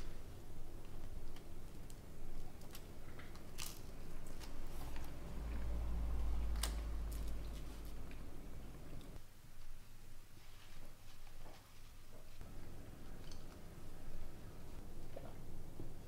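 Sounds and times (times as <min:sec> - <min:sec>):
low rumble: 0:04.8 - 0:09.2.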